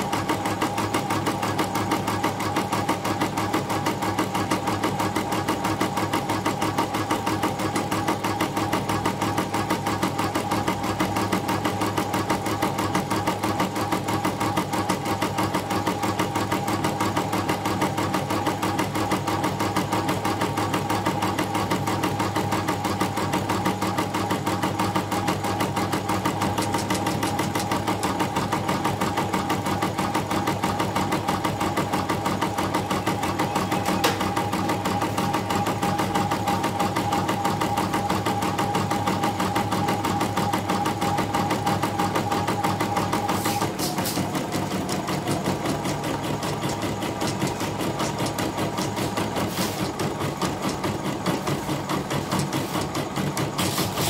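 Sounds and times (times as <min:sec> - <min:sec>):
embroidery machine stitching: 0:00.0 - 0:54.0.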